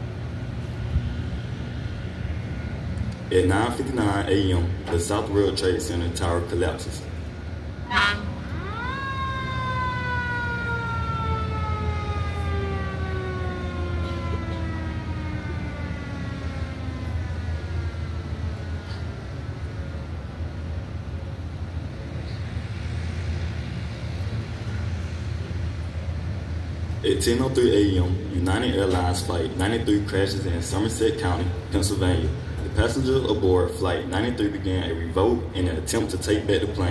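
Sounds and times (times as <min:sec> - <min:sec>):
mechanical siren wailing: 0:07.8 - 0:18.8.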